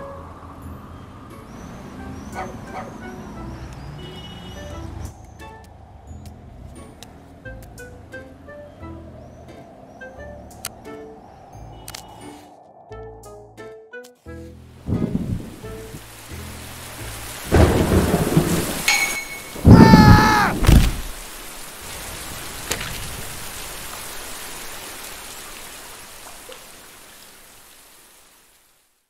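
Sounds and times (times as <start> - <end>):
heavy rain: 14.7 - 29.0
thunder rumbles: 14.8 - 16.0, 17.4 - 18.9, 19.5 - 21.2.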